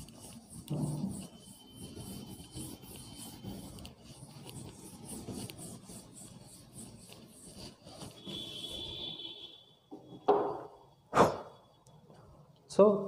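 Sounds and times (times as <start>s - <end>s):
duster rubbing chalkboard: 0.0s - 9.3s.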